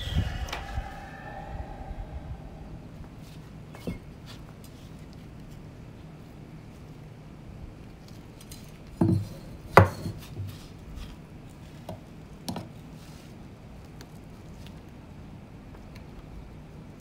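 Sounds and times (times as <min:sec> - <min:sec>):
low steady hum: 0:00.0 - 0:03.4.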